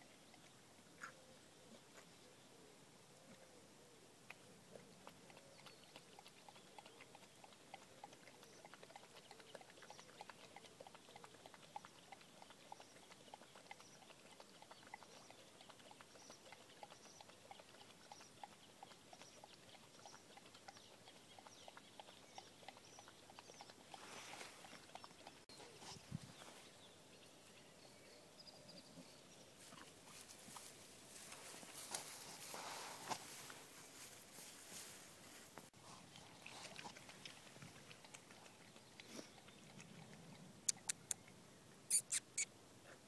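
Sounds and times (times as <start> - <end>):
dog's muzzle clicking in water: 5.1 - 20.8, 39.8 - 41.3.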